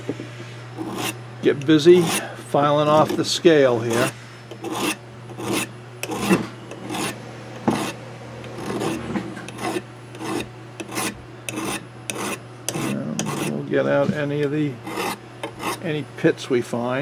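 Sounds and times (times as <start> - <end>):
file rasping on steel: 0.8 - 2.3, 2.9 - 13.6, 14.8 - 15.9.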